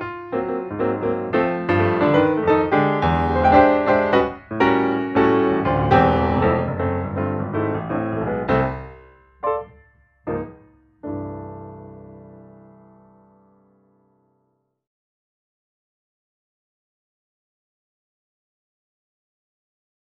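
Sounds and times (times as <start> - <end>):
piano music: 0.0 - 14.5.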